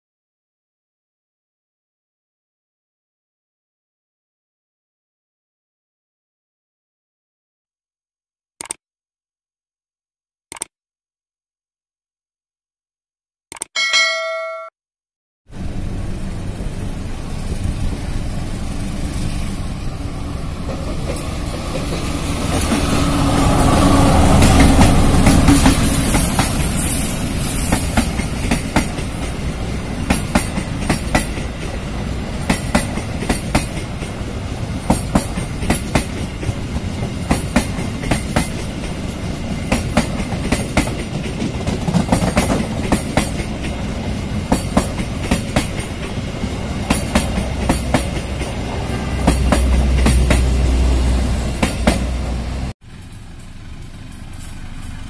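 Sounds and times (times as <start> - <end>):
diesel locomotive engine: 15.5 - 55.0
wheels clacking over rail joints: 18.2 - 55.0
low hum of generator car: 52.8 - 55.0.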